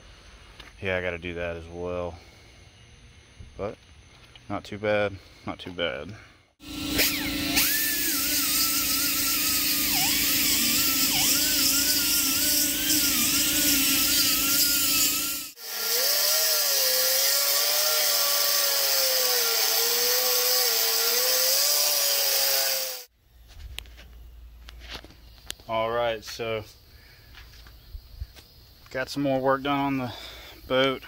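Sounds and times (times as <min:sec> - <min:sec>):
air grinder grinding metal: 0:06.6 - 0:23.1.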